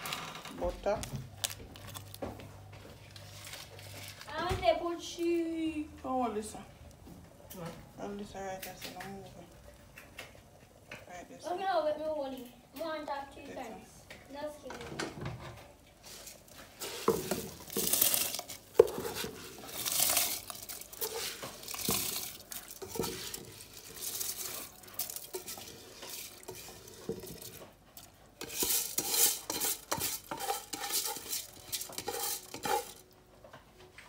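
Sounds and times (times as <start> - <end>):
rice scraped from metal bowl: 16.0 - 27.6, 28.4 - 33.0.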